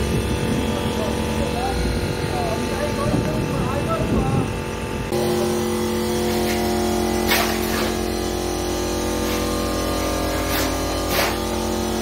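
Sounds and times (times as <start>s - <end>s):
electric motor humming: 0.0s - 12.0s
shovels scraping wet concrete: 6.3s - 8.1s, 9.2s - 11.6s.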